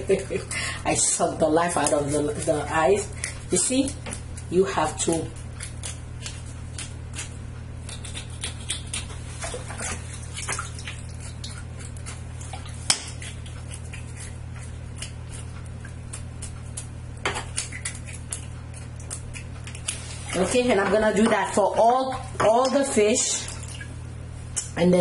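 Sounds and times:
steady low hum: 0:00.0 - 0:25.0
knife scraping fish: 0:01.7 - 0:10.1, 0:10.9 - 0:20.7.

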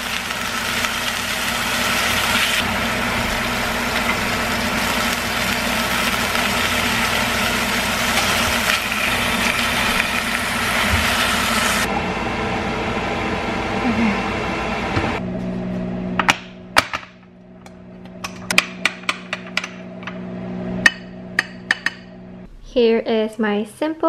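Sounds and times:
meat sizzling in frying pan: 0:00.0 - 0:11.9
steady low hum: 0:02.6 - 0:24.0.

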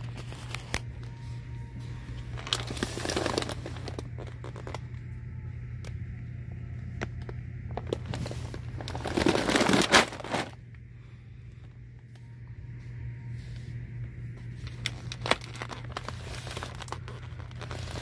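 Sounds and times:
steady low hum: 0:00.0 - 0:18.0
plastic bag crinkling: 0:02.3 - 0:04.9, 0:07.7 - 0:10.6, 0:14.6 - 0:18.0.

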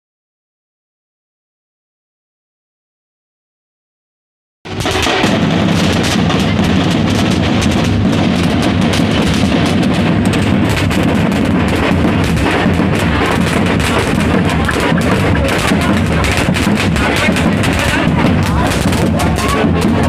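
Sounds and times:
bass drums beating: 0:04.7 - 0:20.0
firecracker pops: 0:04.7 - 0:20.0.

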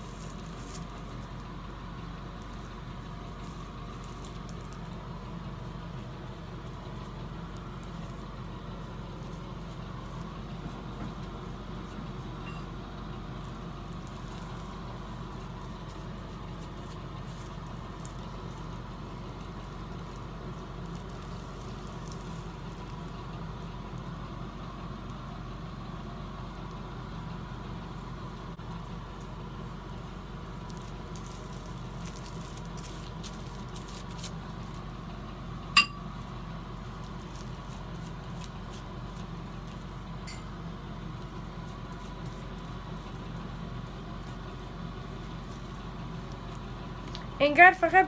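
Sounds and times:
brush ticks and soft squishes: 0:00.0 - 0:47.3
steady low hum: 0:00.0 - 0:48.0
sharp clink: 0:35.8 - 0:36.0.

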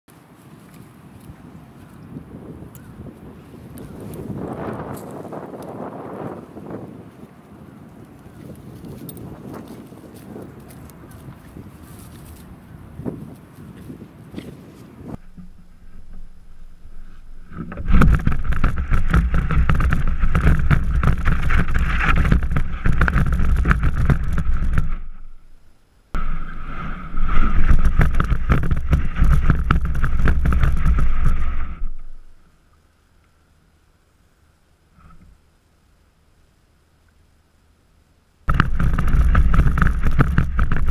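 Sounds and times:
sled scraping over grass: 0:03.3 - 0:25.6, 0:26.2 - 0:32.4, 0:38.5 - 0:40.9.

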